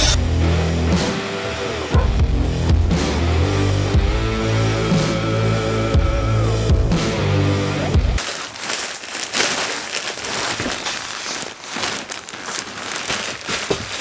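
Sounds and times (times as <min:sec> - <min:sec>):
plastic wrapping crinkling: 0:08.2 - 0:14.0.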